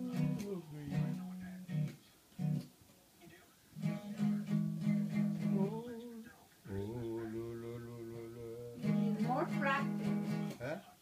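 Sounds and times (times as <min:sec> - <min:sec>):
man humming: 0:00.0 - 0:01.9, 0:03.8 - 0:09.0
ukulele strumming: 0:00.0 - 0:02.6, 0:03.8 - 0:05.8, 0:08.6 - 0:10.6.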